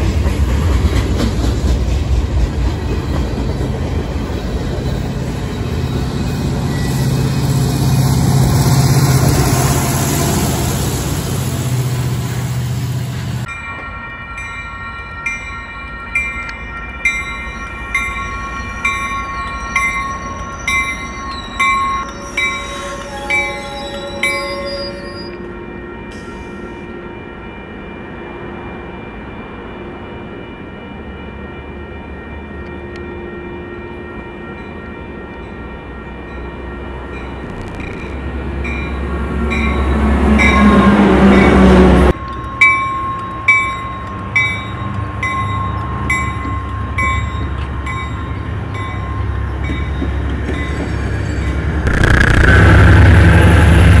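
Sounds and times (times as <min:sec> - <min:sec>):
train rumbling by: 0:00.0 - 0:54.0
faint steady squeal: 0:17.6 - 0:26.9.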